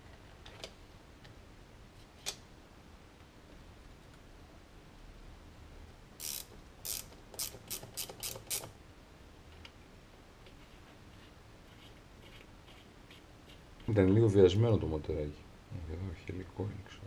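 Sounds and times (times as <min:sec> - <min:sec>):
ratchet wrench clicking: 0:06.2 - 0:08.7.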